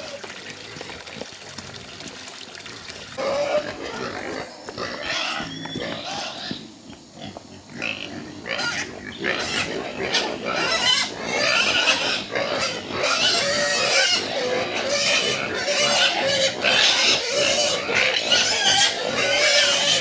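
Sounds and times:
pigs squealing: 2.7s - 20.0s.

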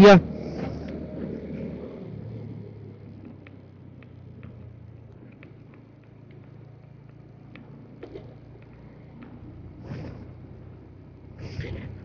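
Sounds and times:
motorcycle engine running: 0.0s - 12.0s
road rumble: 0.0s - 12.0s.

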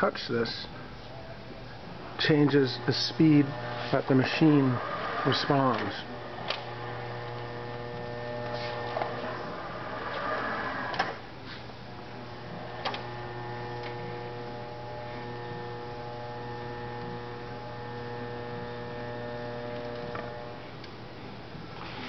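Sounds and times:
electric motor whine: 2.5s - 11.2s, 12.0s - 20.7s.

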